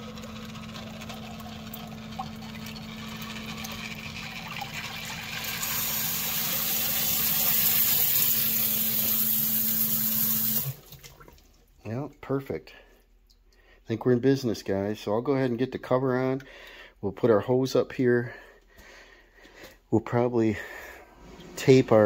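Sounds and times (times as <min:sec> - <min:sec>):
sump pump motor hum: 0:00.0 - 0:11.4, 0:20.6 - 0:22.0
water being pumped out: 0:00.0 - 0:11.6.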